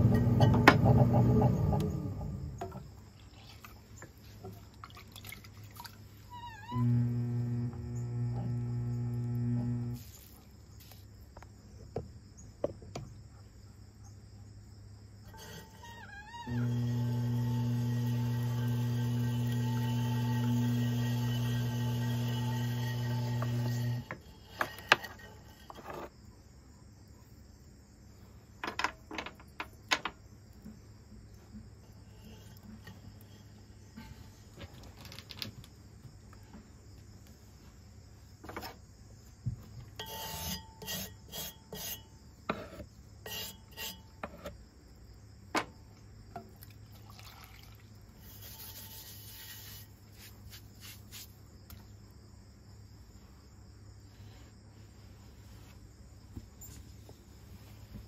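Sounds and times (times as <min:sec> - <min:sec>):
low steady hum: 0:00.0 - 0:10.5
sponge scraping clay slurry: 0:40.0 - 0:44.4, 0:48.2 - 0:51.4.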